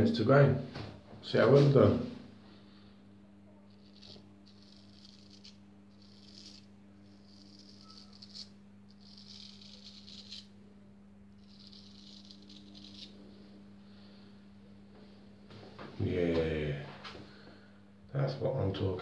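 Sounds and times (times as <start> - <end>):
razor scraping stubble: 3.7 - 10.6, 11.3 - 13.4.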